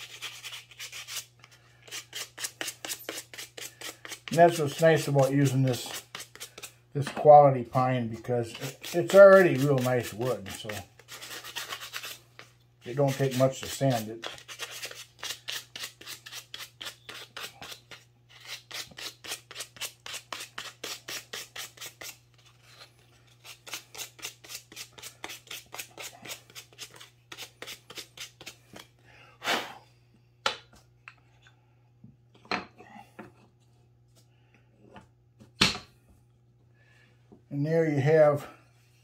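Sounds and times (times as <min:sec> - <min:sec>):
sandpaper rubbing on wood: 0:00.0 - 0:01.3, 0:01.9 - 0:06.7, 0:08.5 - 0:12.2, 0:12.9 - 0:17.8.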